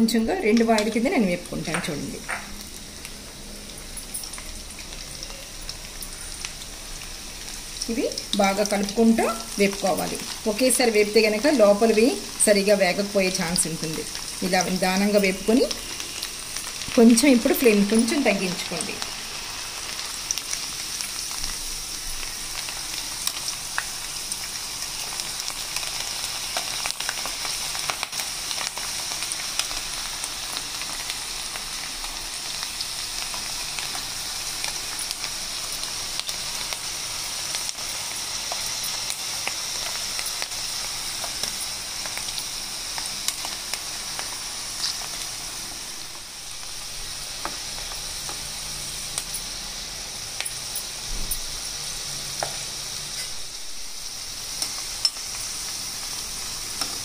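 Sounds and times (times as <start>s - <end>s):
lentils sizzling in hot oil: 0.0s - 57.0s
oil crackles and pops: 19.8s - 49.5s.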